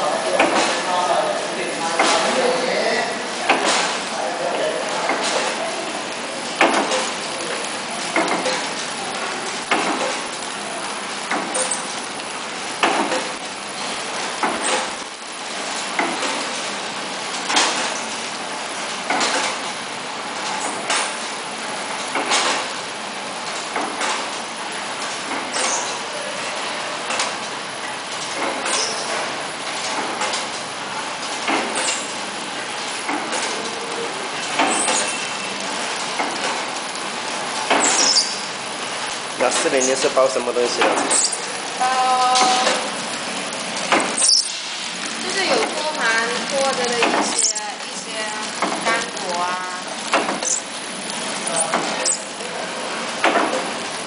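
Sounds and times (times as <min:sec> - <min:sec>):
packaging machine running: 0:00.0 - 0:54.0
sharp mechanical clacks: 0:50.0 - 0:50.7.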